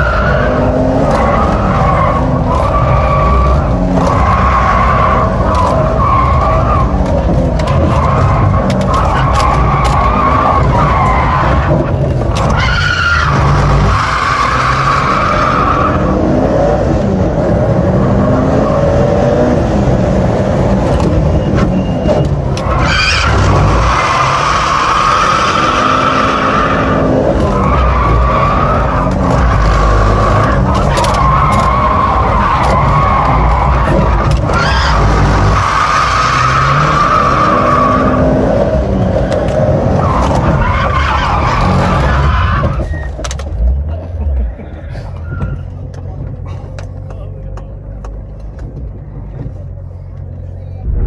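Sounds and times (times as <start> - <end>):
car engine revving: 0.0 - 42.8
tyres squealing: 21.2 - 43.9.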